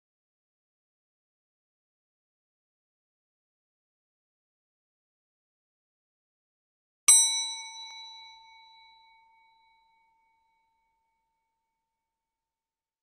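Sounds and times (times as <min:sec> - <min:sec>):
small bell ringing: 0:07.1 - 0:10.9.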